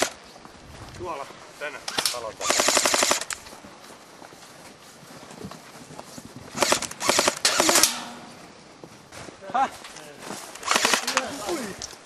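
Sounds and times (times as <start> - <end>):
airsoft rifle automatic bursts: 1.9 - 3.4, 6.6 - 8.0, 10.6 - 11.4.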